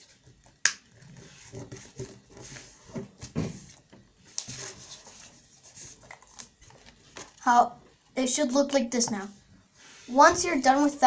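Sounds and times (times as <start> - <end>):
paper rustling and creasing: 0.9 - 7.5.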